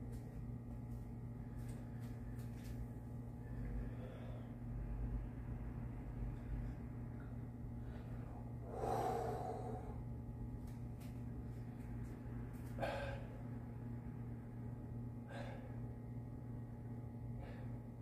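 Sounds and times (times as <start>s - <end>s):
steady low hum: 0.0s - 18.0s
man breathing out heavily: 3.6s - 4.7s, 7.8s - 10.1s, 12.7s - 13.4s, 15.2s - 15.9s, 17.3s - 18.0s.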